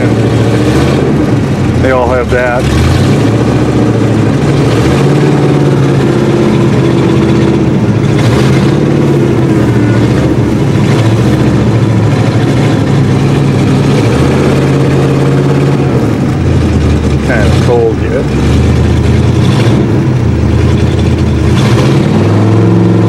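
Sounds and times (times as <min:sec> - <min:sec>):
car engine running loudly: 0:00.0 - 0:23.0.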